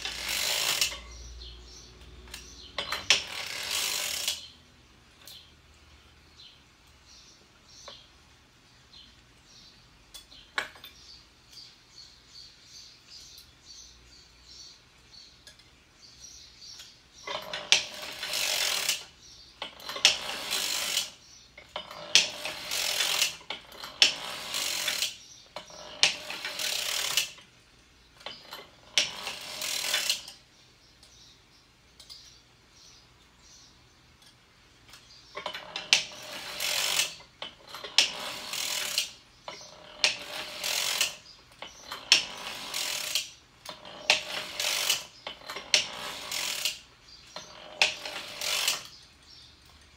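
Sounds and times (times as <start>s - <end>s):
sock knitting machine clattering: 17.3s - 27.4s, 35.4s - 46.8s, 47.4s - 48.9s.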